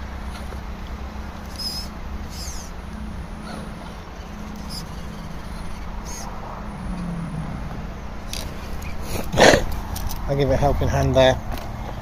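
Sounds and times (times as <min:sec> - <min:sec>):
electric motor and gears whining: 0:00.0 - 0:10.3
short high squeaks: 0:01.4 - 0:02.8, 0:03.4 - 0:06.3.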